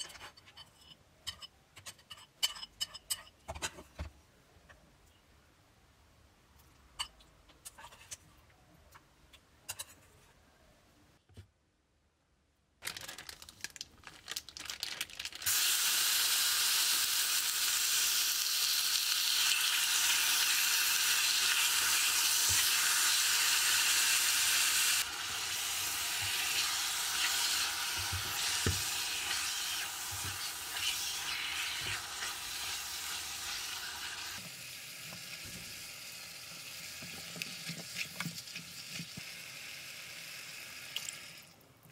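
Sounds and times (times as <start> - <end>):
chicken sizzling in a pot: 15.4 - 41.4.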